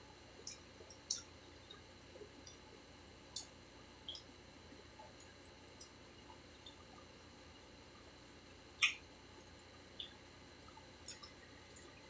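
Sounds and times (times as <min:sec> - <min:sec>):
chewing clicks and lip smacks: 0:00.4 - 0:02.6, 0:03.3 - 0:03.5, 0:08.8 - 0:09.0, 0:10.0 - 0:12.0.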